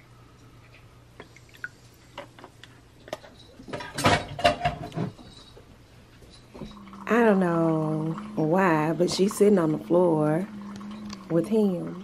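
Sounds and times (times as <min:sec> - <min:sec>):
liquid pouring into a mug: 0:06.6 - 0:12.0.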